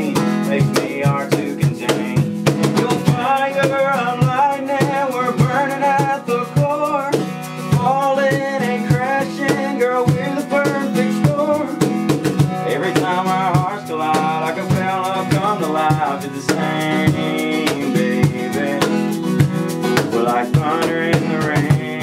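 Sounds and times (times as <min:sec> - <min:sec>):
hand percussion: 0:00.0 - 0:22.0
man singing: 0:00.0 - 0:22.0
strummed acoustic guitar: 0:00.0 - 0:22.0.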